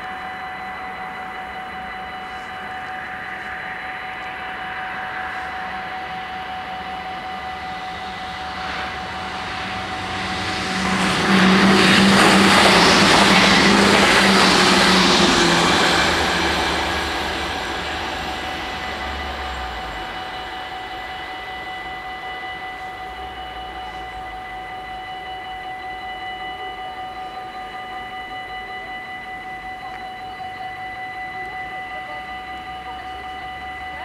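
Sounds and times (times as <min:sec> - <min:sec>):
level-crossing warning bells: 0:00.0 - 0:34.0
passing vehicle hum: 0:03.0 - 0:22.2.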